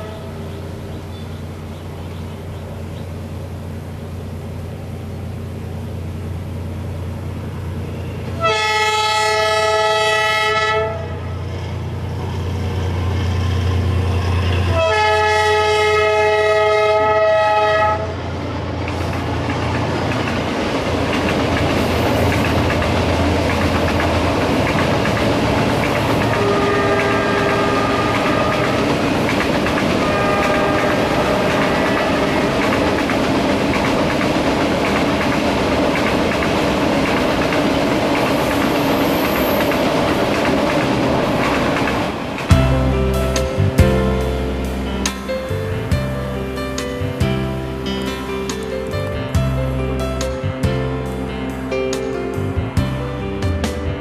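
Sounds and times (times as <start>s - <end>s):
train horn blasts: 0.0s - 0.6s, 7.9s - 11.4s, 14.4s - 18.2s, 26.2s - 29.2s, 29.8s - 32.8s
locomotive engine drone: 0.0s - 54.0s
wheels clacking on rails: 5.6s - 47.4s.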